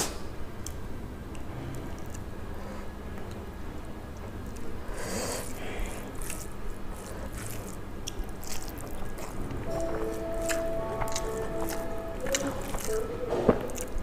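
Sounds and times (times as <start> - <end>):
close-up chewing: 1.4 - 14.0
wet squishing of food by hand: 4.2 - 14.0
background music: 9.6 - 14.0.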